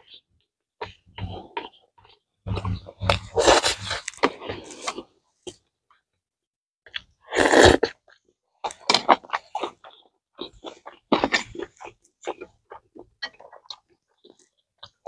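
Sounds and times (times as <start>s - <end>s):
wet chewing clicks: 7.8s - 15.0s.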